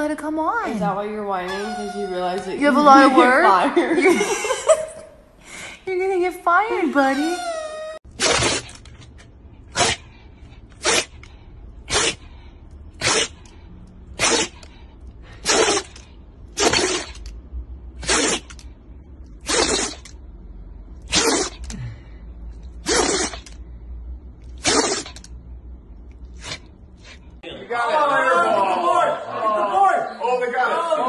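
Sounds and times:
dog sneezing: 0:08.1 - 0:08.8, 0:09.7 - 0:14.7, 0:15.3 - 0:17.3, 0:18.0 - 0:18.6, 0:19.4 - 0:20.2, 0:21.0 - 0:21.8, 0:22.7 - 0:23.6, 0:24.5 - 0:25.4, 0:26.3 - 0:27.2.

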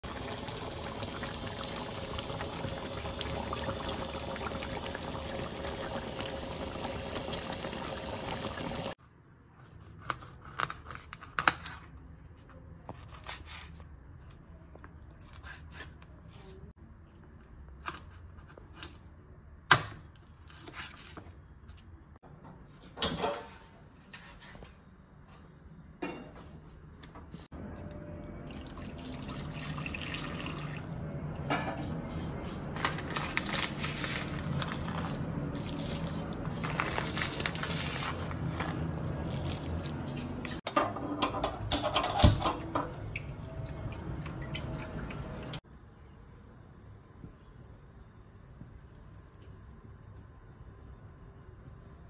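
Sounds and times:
curry bubbling in a pan: 0:00.0 - 0:09.0.

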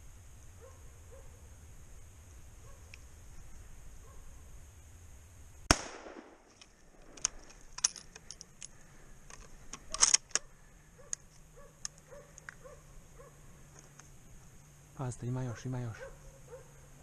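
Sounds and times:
rifle shot: 0:05.7 - 0:06.5.

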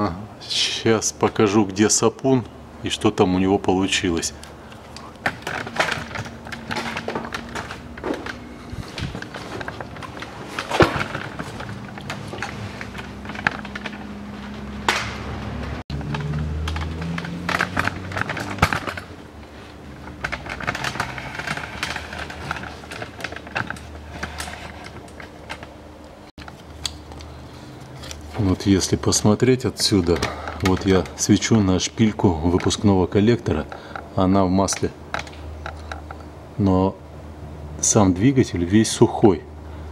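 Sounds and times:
low hum: 0:04.4 - 0:28.5.

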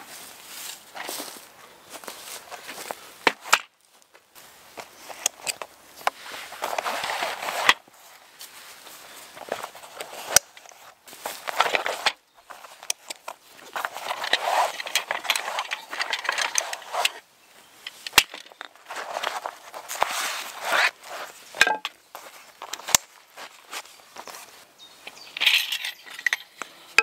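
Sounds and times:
nylon fabric rustling and scraping: 0:04.8 - 0:17.2, 0:17.8 - 0:26.0.

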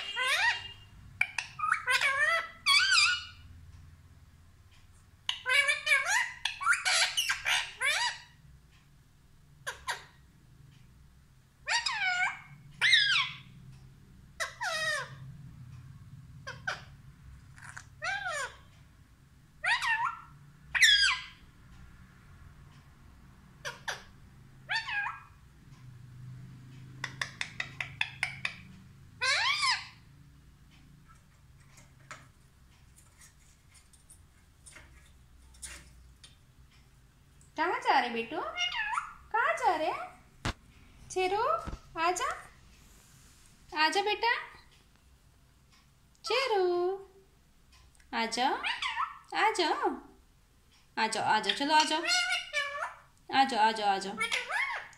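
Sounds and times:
parakeet calling: 0:00.0 - 0:03.6, 0:05.2 - 0:08.5, 0:09.6 - 0:10.2, 0:11.6 - 0:13.7, 0:14.3 - 0:15.3, 0:16.4 - 0:18.7, 0:19.6 - 0:21.5, 0:23.5 - 0:25.5, 0:26.9 - 0:36.4, 0:37.8 - 0:40.3, 0:48.6 - 0:49.3, 0:51.4 - 0:54.9.

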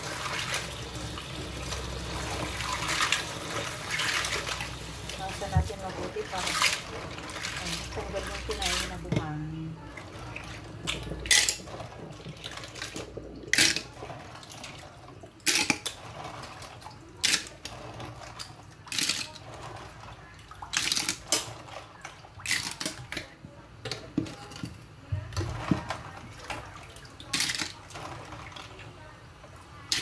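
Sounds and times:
clams sloshing in water: 0:01.8 - 0:22.6.

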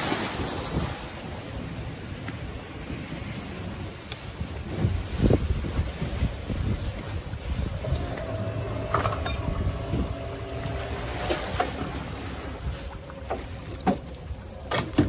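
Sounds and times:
water sloshing and splashing: 0:00.0 - 0:15.0
boat motor running: 0:06.6 - 0:15.0.

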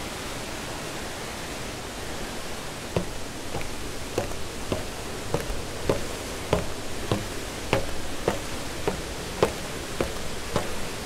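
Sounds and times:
footsteps on concrete stairs: 0:02.9 - 0:11.0.

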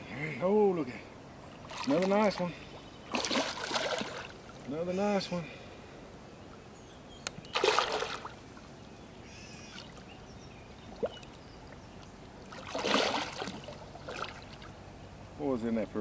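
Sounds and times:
fish splashing and thrashing in water: 0:03.1 - 0:04.5, 0:07.5 - 0:08.4, 0:12.4 - 0:14.7.

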